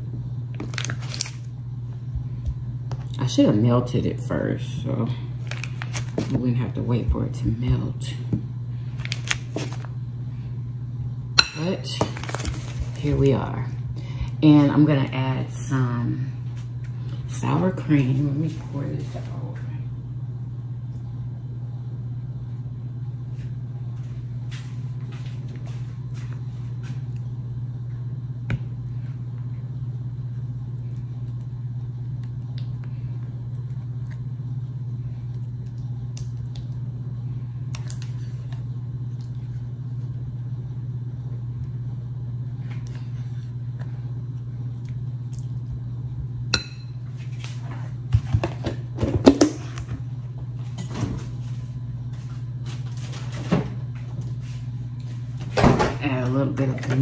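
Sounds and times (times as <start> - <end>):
steady low appliance hum: 0.0 - 57.0.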